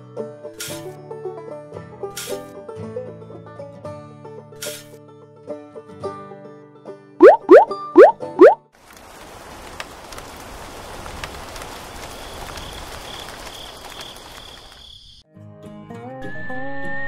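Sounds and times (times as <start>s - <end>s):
rain drop ticks: 7.2s - 14.8s
rain hissing: 8.8s - 14.8s.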